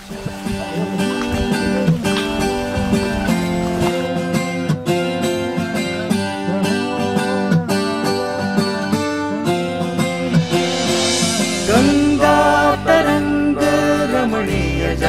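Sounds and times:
plucked string instrument melody: 0:00.0 - 0:15.0
hissing swell: 0:09.5 - 0:14.6.

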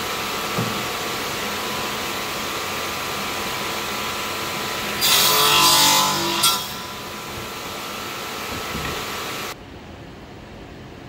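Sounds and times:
saw motor humming: 0:01.1 - 0:09.6
saw blade cutting wood: 0:04.8 - 0:08.0.

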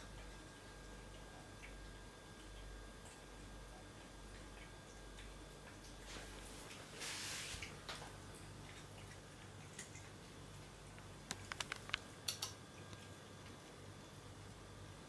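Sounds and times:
soft rustle: 0:06.1 - 0:07.7
small sharp clicks and taps: 0:10.9 - 0:13.1.

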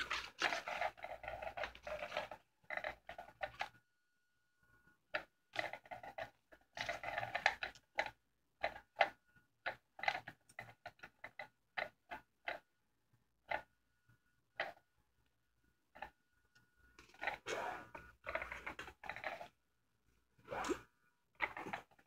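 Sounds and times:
cat toy mechanism clicking and rattling: 0:00.0 - 0:03.8, 0:05.1 - 0:12.7, 0:13.4 - 0:13.7, 0:14.6 - 0:14.8, 0:15.9 - 0:16.2, 0:17.0 - 0:19.6, 0:21.4 - 0:22.0.

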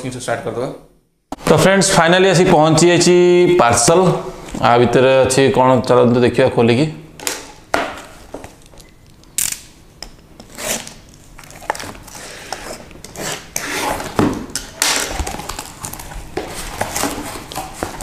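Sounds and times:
packing tape ripping: 0:08.5 - 0:09.8, 0:10.4 - 0:18.0.

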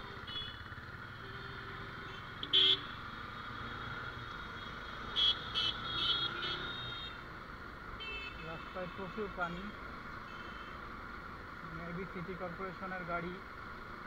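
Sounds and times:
vehicle horns honking: 0:00.0 - 0:00.7, 0:01.3 - 0:02.9, 0:05.1 - 0:07.2, 0:08.0 - 0:09.6, 0:10.3 - 0:10.8.

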